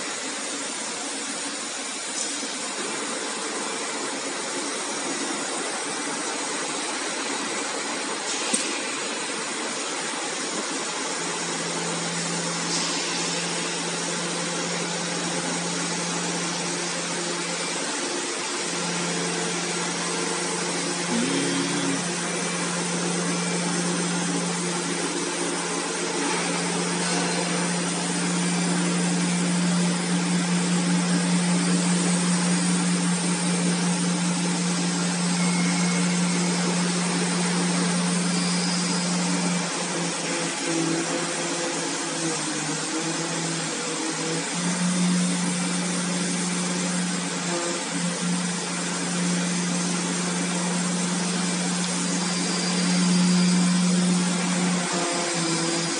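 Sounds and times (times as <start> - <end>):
machine noise: 8.0 - 55.9
cutting knife humming: 21.0 - 22.6.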